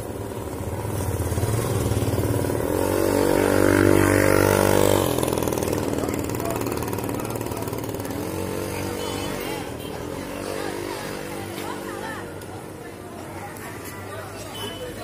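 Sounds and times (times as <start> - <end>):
vehicle engine running: 0.0 - 9.1.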